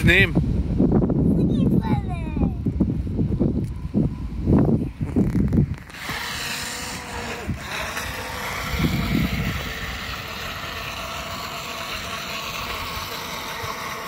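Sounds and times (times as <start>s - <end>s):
toy boat electric motor whirring: 5.2s - 14.0s.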